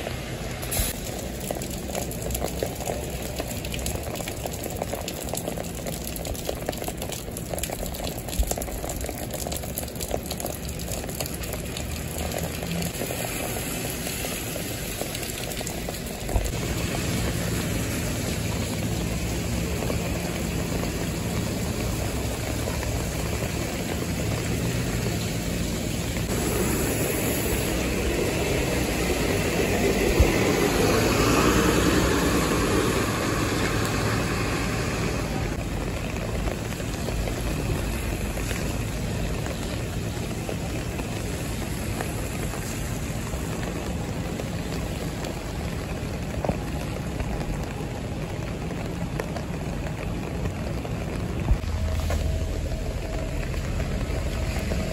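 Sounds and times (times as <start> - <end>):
rain pattering on street: 0.0 - 54.9
traffic running: 10.4 - 54.9
truck engine hum: 11.5 - 54.9
bus driving past: 16.5 - 35.6.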